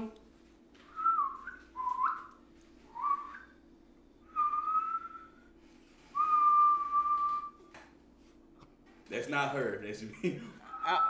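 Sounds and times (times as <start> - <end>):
person whistling: 0.9 - 3.6, 4.3 - 5.5, 6.1 - 7.6.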